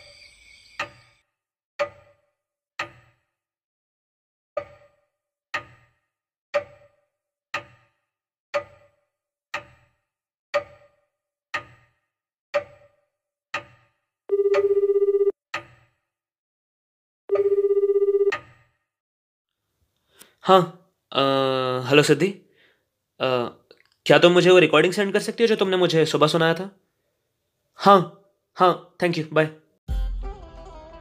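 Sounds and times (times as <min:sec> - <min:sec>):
clock ticking: 0:01.8 - 0:02.2, 0:02.8 - 0:03.2, 0:04.6 - 0:05.0, 0:05.6 - 0:06.0, 0:06.6 - 0:08.0, 0:08.6 - 0:10.0, 0:10.6 - 0:11.9, 0:12.6 - 0:14.9, 0:15.6 - 0:15.9
telephone ringback tone: 0:14.3 - 0:15.4, 0:17.3 - 0:18.3.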